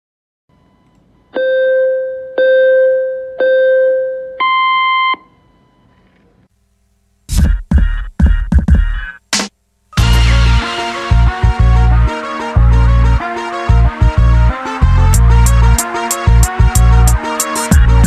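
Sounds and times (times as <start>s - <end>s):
electronic countdown beeps: 1.3s - 5.8s
electronic music with heavy beat: 7.3s - 18.0s.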